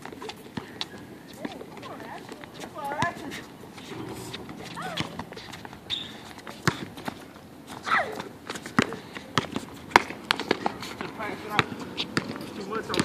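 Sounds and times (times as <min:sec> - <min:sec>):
shoes hitting concrete court: 0:00.0 - 0:13.0
basketball bouncing: 0:03.9 - 0:07.2.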